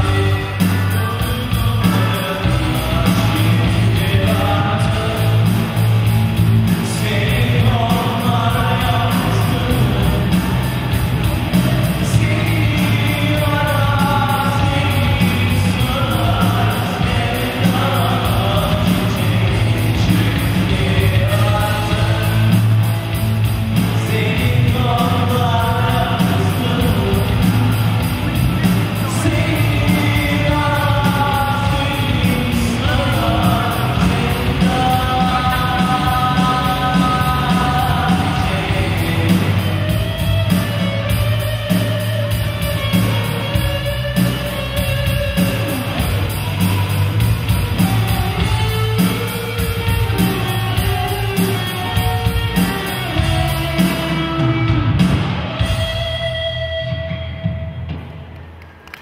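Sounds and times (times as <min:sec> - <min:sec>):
man singing: 0:00.0 - 0:55.9
live rock band playing: 0:00.0 - 0:59.0.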